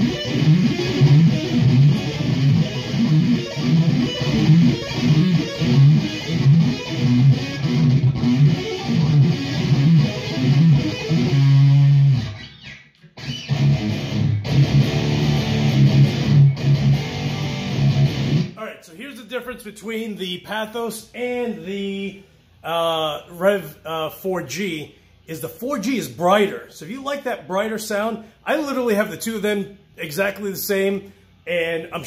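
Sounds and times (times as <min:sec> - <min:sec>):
distorted electric guitar riffs: 0:00.0 - 0:18.8.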